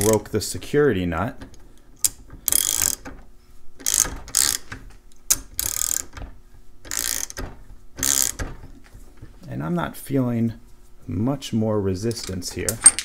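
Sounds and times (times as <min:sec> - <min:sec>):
ratchet wrench clicking: 0:02.0 - 0:03.0, 0:03.8 - 0:04.7, 0:05.3 - 0:06.1, 0:06.9 - 0:07.4, 0:08.0 - 0:08.4.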